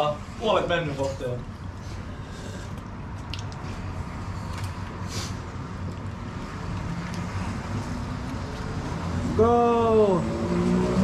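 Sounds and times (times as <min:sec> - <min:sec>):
short hiss: 0:05.0 - 0:05.4.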